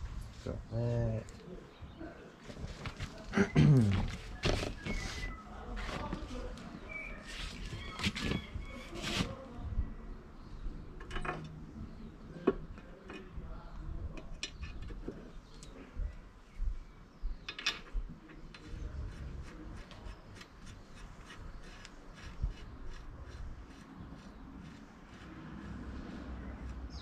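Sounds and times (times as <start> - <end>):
metal parts and tools clinking: 11.0 - 11.6.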